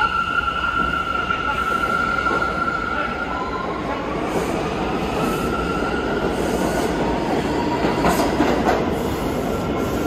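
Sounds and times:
train wheels rumbling on rails: 0:03.6 - 0:10.0.

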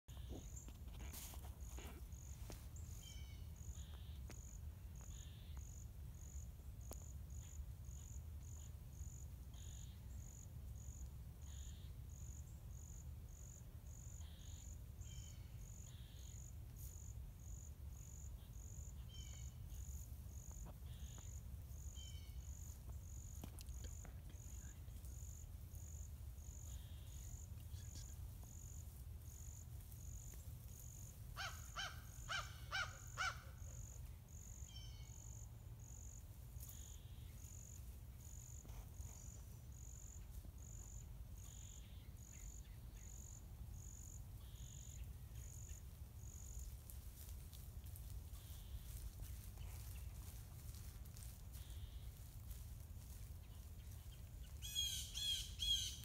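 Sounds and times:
insect chirping: 0:00.1 - 0:56.0.

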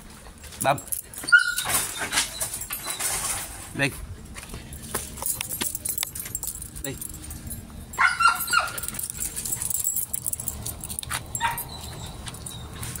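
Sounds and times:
metal chain leash clinking: 0:00.0 - 0:03.7, 0:04.5 - 0:13.0
dog barking: 0:08.0 - 0:08.9, 0:11.4 - 0:11.7.

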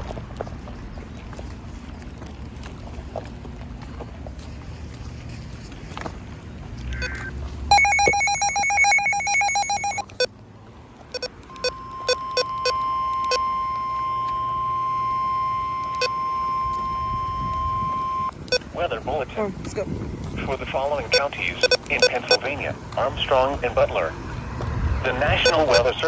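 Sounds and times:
pulsing electronic alarm beep: 0:06.9 - 0:10.3, 0:11.1 - 0:18.6, 0:21.1 - 0:22.5, 0:25.2 - 0:26.0
steady alert tone: 0:07.0 - 0:10.3.

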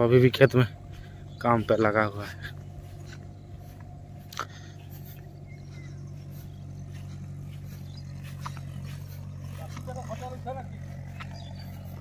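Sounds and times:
low engine drone: 0:00.0 - 0:12.0.

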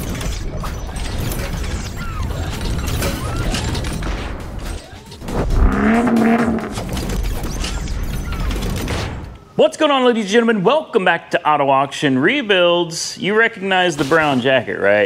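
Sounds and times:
music with heavy low pulse: 0:05.2 - 0:07.0
sustained pitched tone: 0:05.2 - 0:07.0.

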